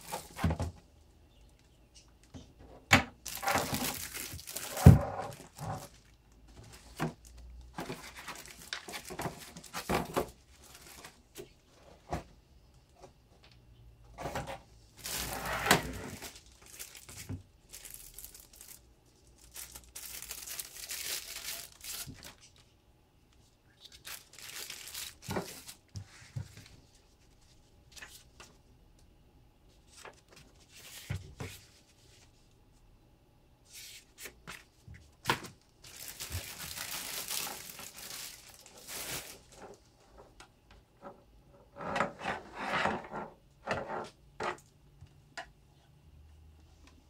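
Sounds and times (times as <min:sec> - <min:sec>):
plastic packaging crinkling: 0:03.2 - 0:11.2, 0:15.0 - 0:22.7, 0:23.9 - 0:26.0, 0:35.4 - 0:39.7.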